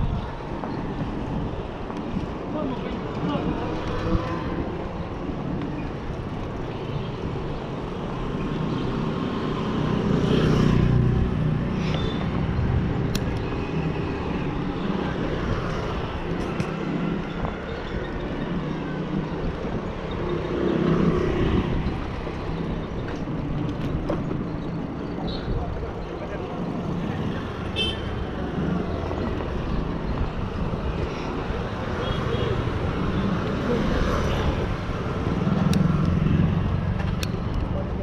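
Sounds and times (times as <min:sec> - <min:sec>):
wind rumbling on microphone: 0:00.0 - 0:08.4, 0:10.8 - 0:27.5, 0:28.3 - 0:32.0
passing motor vehicles: 0:00.0 - 0:38.0
road noise from bicycle: 0:00.0 - 0:38.0.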